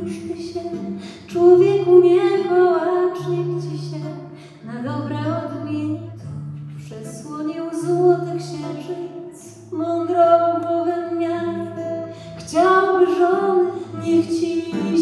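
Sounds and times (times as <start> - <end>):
woman singing: 0.0 - 15.0.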